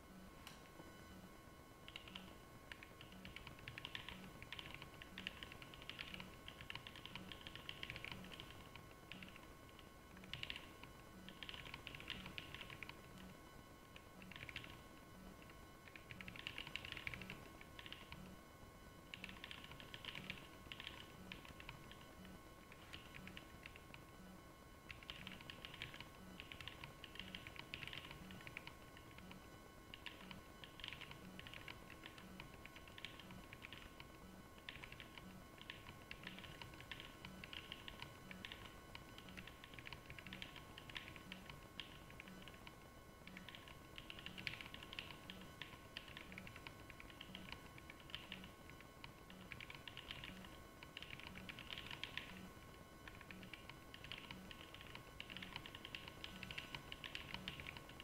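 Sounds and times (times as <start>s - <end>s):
faint steady hum: 0.0s - 58.0s
typing on mechanical keyboards: 1.9s - 13.2s, 14.2s - 14.8s, 15.4s - 18.2s, 19.1s - 22.0s, 22.7s - 23.9s, 24.9s - 29.3s, 29.9s - 42.7s, 43.3s - 48.5s, 49.1s - 52.4s, 53.0s - 58.0s.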